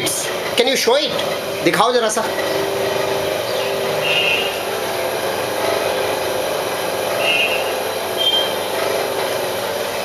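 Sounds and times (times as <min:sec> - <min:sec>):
polishing machine motor whir: 0:00.0 - 0:10.0
short high squeaks: 0:03.5 - 0:04.6, 0:07.2 - 0:08.6.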